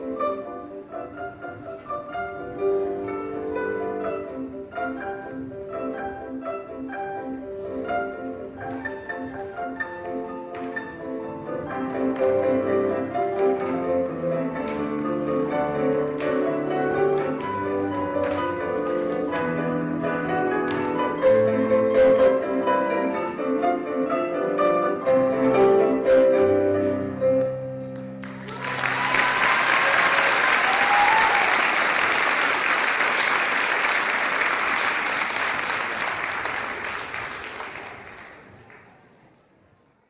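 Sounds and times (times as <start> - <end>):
audience applause: 28.2 - 39.0.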